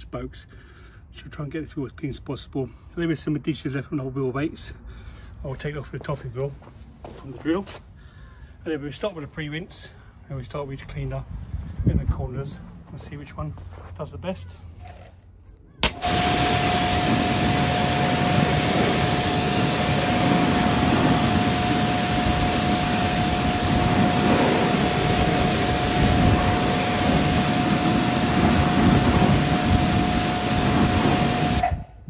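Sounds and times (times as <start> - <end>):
water jet spraying wheel: 15.8 - 31.8
pressure washer whine: 15.8 - 32.0.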